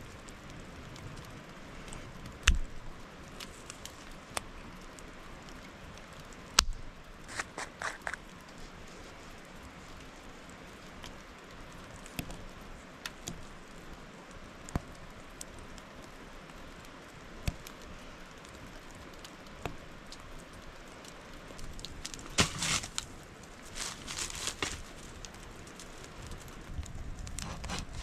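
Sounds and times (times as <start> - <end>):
rain hissing: 0.0 - 28.0
wood snapping and cracking: 0.3 - 8.3, 14.7 - 28.0
rustling: 7.3 - 9.4, 21.5 - 28.0.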